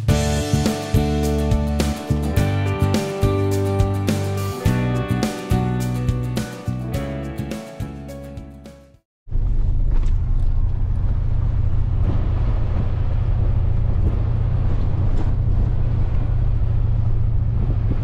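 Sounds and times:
vehicle engine and road noise: 9.3s - 18.0s.

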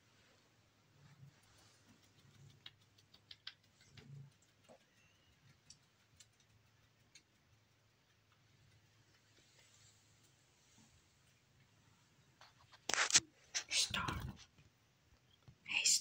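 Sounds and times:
faint clicks: 1.2s - 9.6s
soft rustles: 9.0s - 14.8s.

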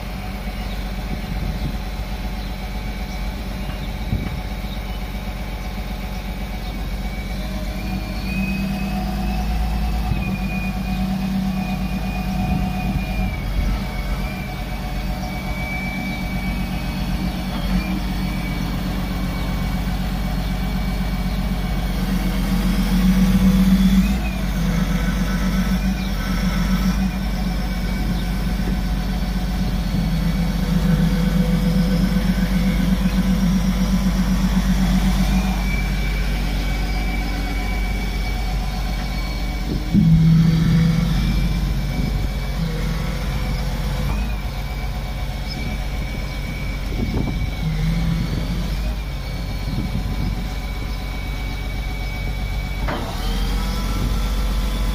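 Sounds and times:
diesel engine with high whine: 0.0s - 54.9s.

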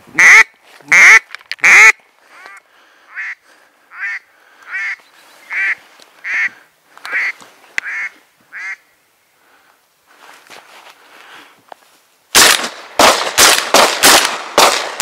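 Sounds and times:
duck call quacks: 0.1s - 8.9s.

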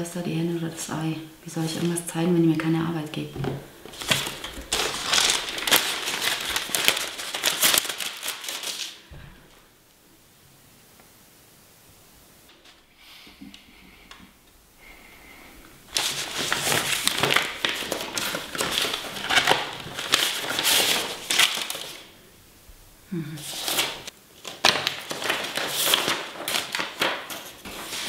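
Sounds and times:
paper rustling: 3.4s - 9.1s, 15.9s - 22.1s, 23.4s - 28.0s.

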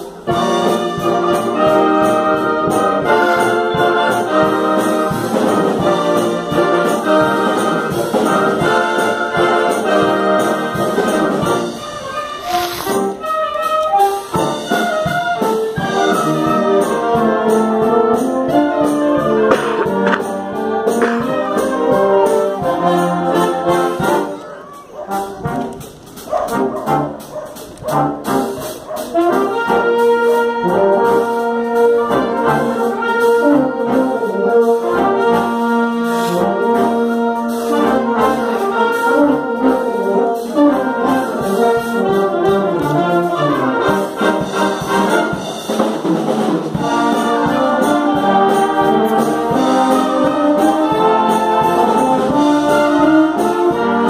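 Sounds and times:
concert band playing: 0.0s - 54.0s.

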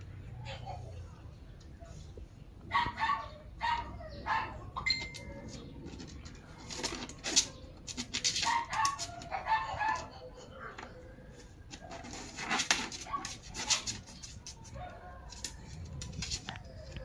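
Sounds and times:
chickens clucking: 2.7s - 12.4s
rustling or scraping noises: 4.8s - 17.0s.

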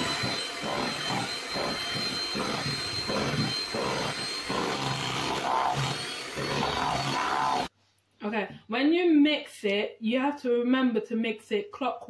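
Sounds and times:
beaters churning thick batter: 0.0s - 7.7s
electric hand mixer whining: 0.0s - 7.7s.

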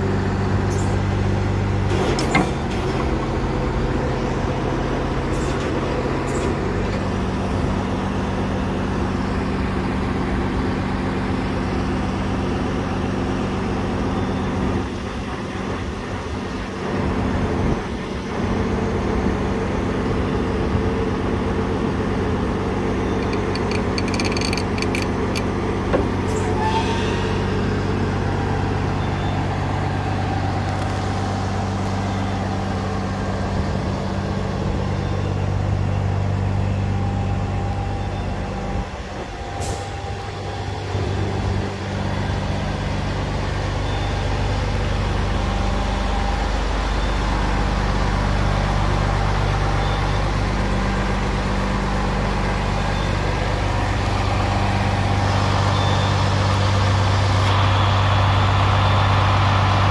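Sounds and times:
diesel engine idling: 0.0s - 59.9s.

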